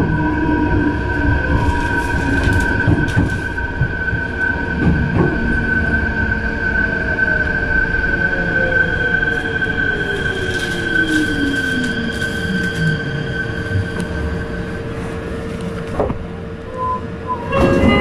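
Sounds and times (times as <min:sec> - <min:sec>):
electric train inverter whine: 0:00.0 - 0:18.0
train stopping burst: 0:16.7 - 0:18.0.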